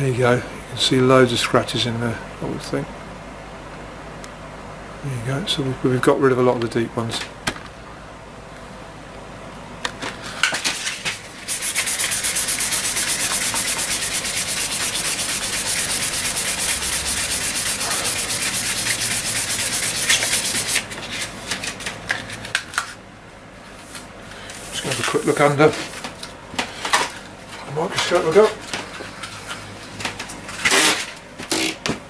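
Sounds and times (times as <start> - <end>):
sandpaper rubbing on wood: 11.4 - 21.3.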